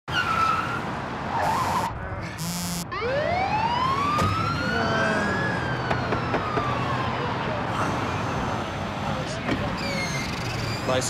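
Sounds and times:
police car siren wailing: 1.4s - 7.7s.

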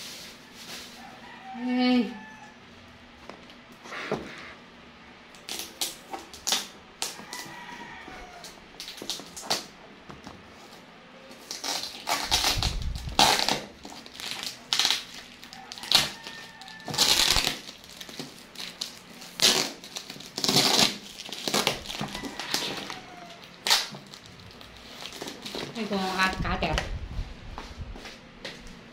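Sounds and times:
scissors cutting tape and cardboard: 11.4s - 24.0s.

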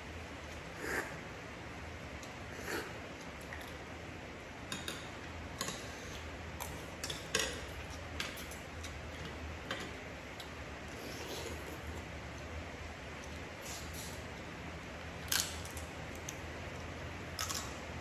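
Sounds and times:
low steady hum: 0.0s - 18.0s
eating clicks and smacks: 15.2s - 17.8s.

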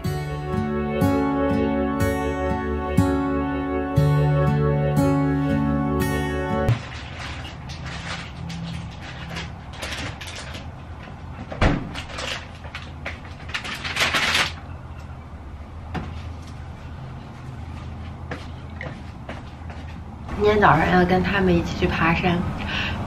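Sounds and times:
plastic packaging rustling: 6.7s - 14.6s.

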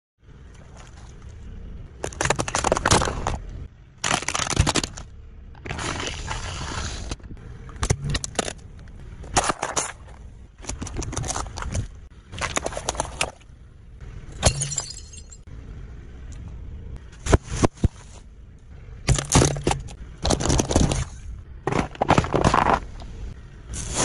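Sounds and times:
tyre crushing objects: 19.0s - 23.0s.

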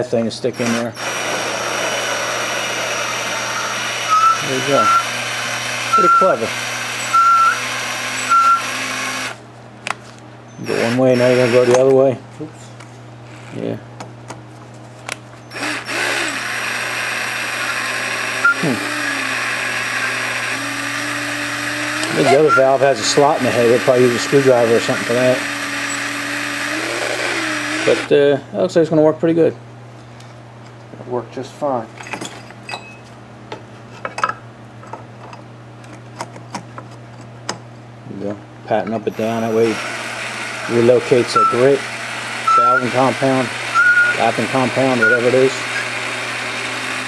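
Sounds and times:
electric drill running: 0.0s - 9.4s, 10.6s - 11.9s, 15.4s - 28.1s, 39.1s - 47.0s.

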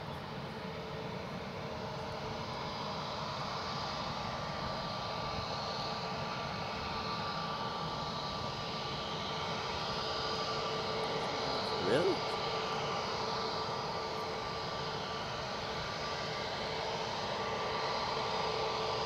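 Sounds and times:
jet engines whining: 0.0s - 19.0s.

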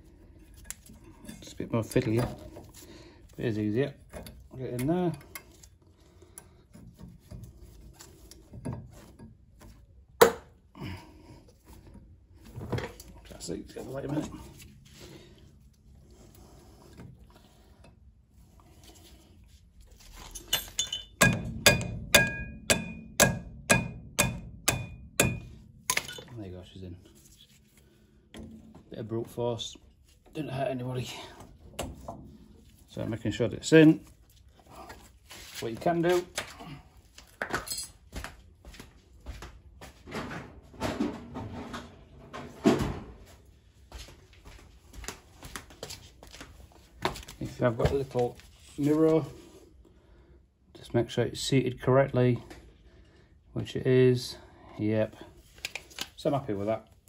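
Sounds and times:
brake parts and tools clattering: 20.1s - 22.7s, 25.1s - 26.4s
hammer striking metal drift: 21.2s - 25.6s.

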